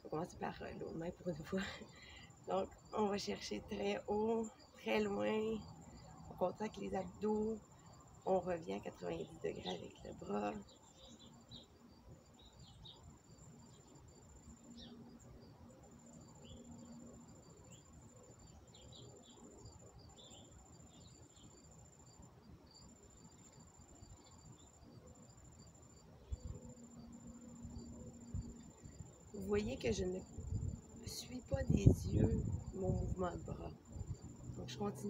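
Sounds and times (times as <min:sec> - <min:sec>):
cricket trilling: 0:00.0 - 0:35.0.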